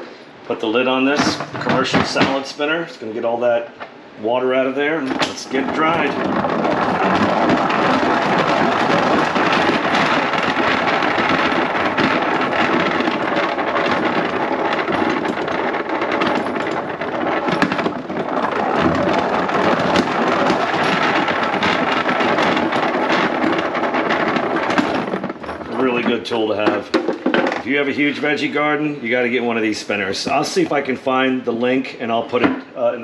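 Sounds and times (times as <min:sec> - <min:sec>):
salad spinner whirring rattle: 0:04.9 - 0:26.2.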